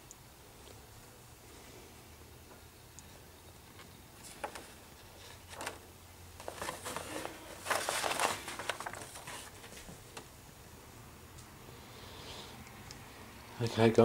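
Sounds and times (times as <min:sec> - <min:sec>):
paper rustling and crinkling: 0:03.8 - 0:10.3.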